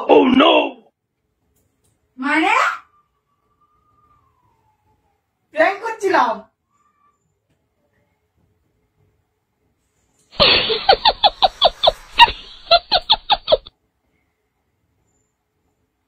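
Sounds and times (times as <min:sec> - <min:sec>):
laughter sound effect: 0:10.4 - 0:13.7.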